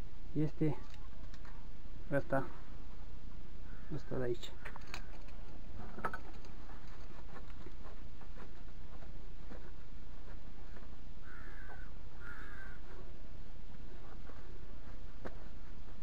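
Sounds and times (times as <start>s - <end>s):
bird calling: 3.6s - 5.3s, 11.2s - 13.1s
faint knocks and handling noises: 4.6s - 11.0s.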